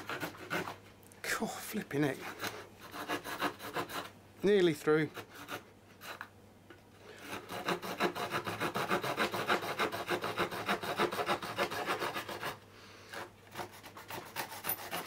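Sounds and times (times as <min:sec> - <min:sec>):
hand saw cutting wood: 0:00.0 - 0:00.8, 0:02.2 - 0:04.1, 0:05.0 - 0:06.3, 0:07.1 - 0:15.0.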